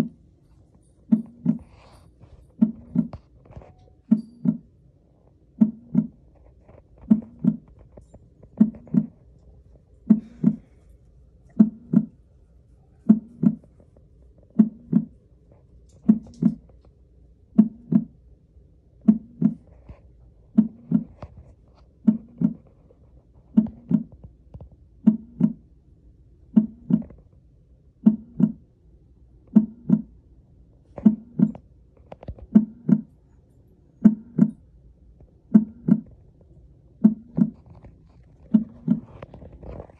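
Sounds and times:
heartbeat thumping: 2.6 - 3.3, 5.6 - 6.2, 7.0 - 7.7, 8.6 - 9.2, 10.0 - 10.8, 11.6 - 12.2, 13.1 - 13.8, 14.5 - 15.2, 16.0 - 16.6, 17.5 - 18.2, 19.0 - 19.7, 20.5 - 21.2, 22.0 - 22.6, 23.5 - 24.1, 25.0 - 25.6, 26.5 - 27.2, 28.0 - 28.6, 29.5 - 30.1, 31.0 - 31.6, 32.5 - 33.1, 34.0 - 34.6, 35.5 - 36.2, 37.0 - 37.7, 38.5 - 39.2.

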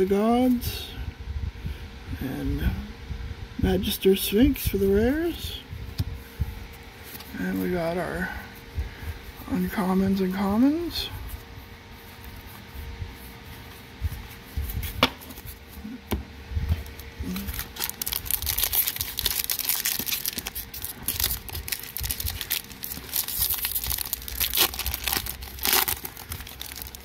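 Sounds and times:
foil wrapper crinkling: 16.8 - 27.0
foil wrapper tearing: 17.2 - 27.0.

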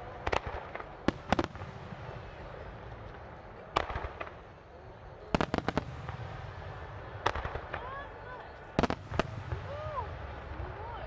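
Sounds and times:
firework bangs: 0.0 - 2.6, 3.6 - 4.5, 5.3 - 8.0, 8.8 - 10.8.

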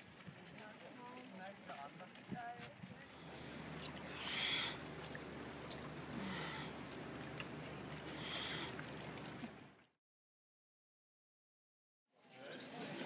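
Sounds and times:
sea: 0.0 - 9.9
wind: 0.0 - 10.0, 12.1 - 13.0.

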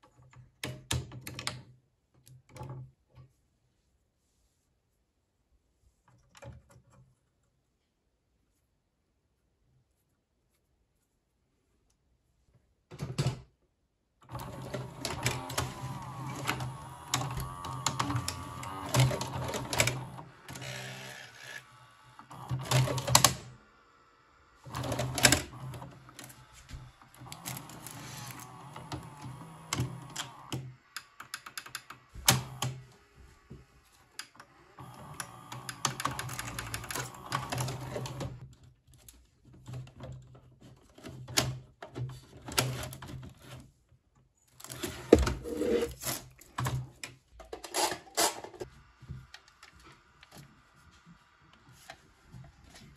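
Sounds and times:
mechanism clicking and clattering: 14.3 - 21.6, 24.7 - 26.4, 34.0 - 43.6
motor hum: 14.3 - 31.2.

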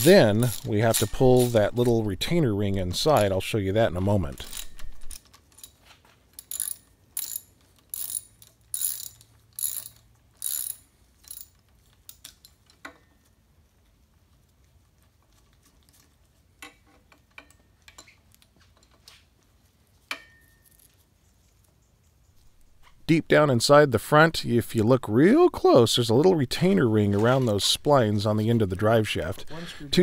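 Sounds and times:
tripod head ratcheting: 0.0 - 2.0, 4.0 - 13.0.

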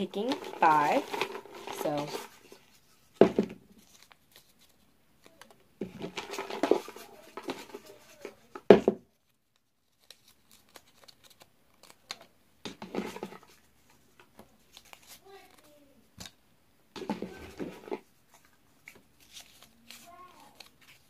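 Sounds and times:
paper slips rustling: 0.0 - 3.2, 17.2 - 21.0.

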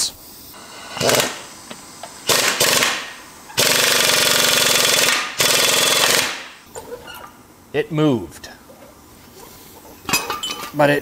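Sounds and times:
air impact wrench hammering: 0.6 - 6.6.

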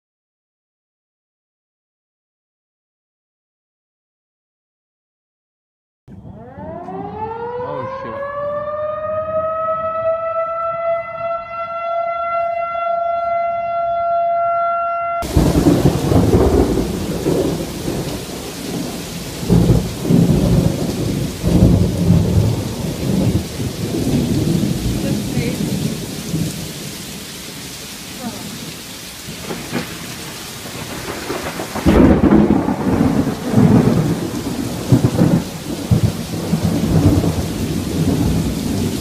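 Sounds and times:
warning siren wailing: 6.1 - 26.4
wind: 6.1 - 39.0
thunder rumbles: 6.3 - 39.0
heavy rain: 15.2 - 39.0.

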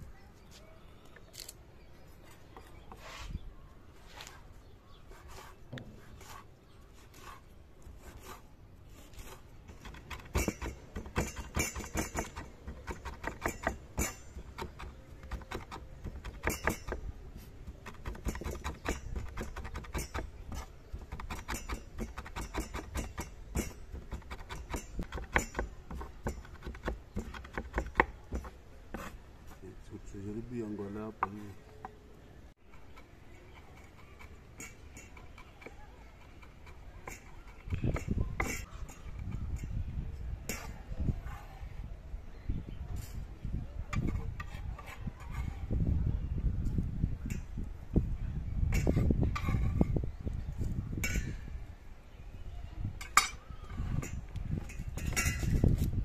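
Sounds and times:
knife chopping on wooden board: 17.7 - 29.2.

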